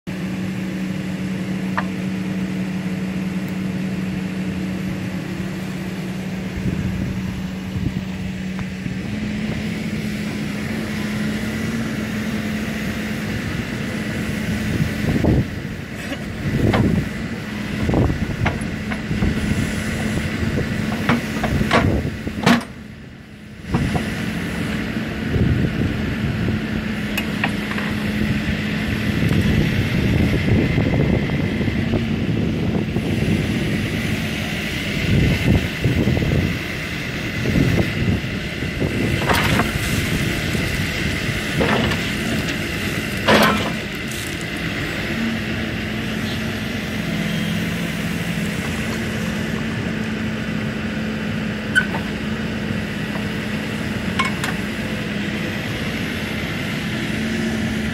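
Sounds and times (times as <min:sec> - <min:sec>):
diesel engine running: 0:00.0 - 0:57.9
metal clanks and knocks: 0:21.0 - 0:22.8, 0:43.2 - 0:43.8, 0:54.1 - 0:54.7.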